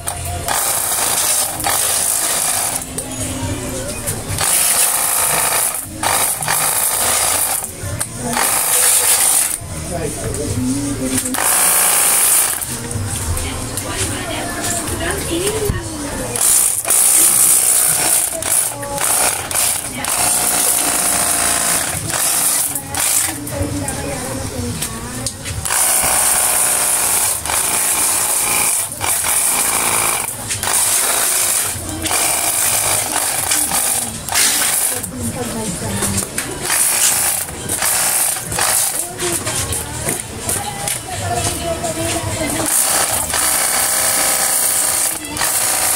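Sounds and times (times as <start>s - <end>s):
pressure washer pump whining: 4.3s - 9.6s, 11.2s - 13.0s, 16.4s - 23.4s, 25.6s - 35.2s, 36.1s - 39.5s, 42.6s - 45.9s.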